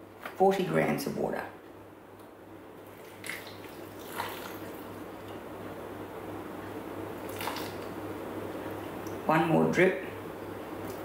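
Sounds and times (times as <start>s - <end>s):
small water splashes: 2.9s - 4.9s, 7.2s - 7.9s.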